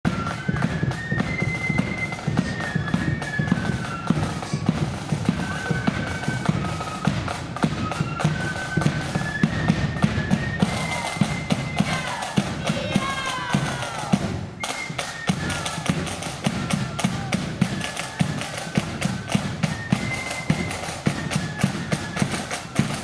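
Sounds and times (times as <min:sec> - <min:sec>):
flutes playing melody: 0:00.1 - 0:23.0
rapid side-drum strokes: 0:00.1 - 0:23.0.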